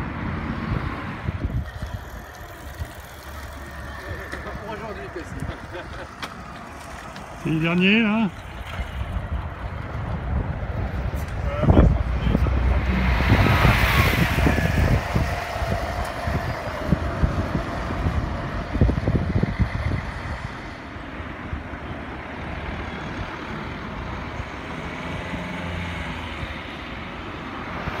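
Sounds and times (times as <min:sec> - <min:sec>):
wind buffeting microphone: 0:00.0 - 0:22.2
bus engine rumble and whine: 0:00.0 - 0:28.0.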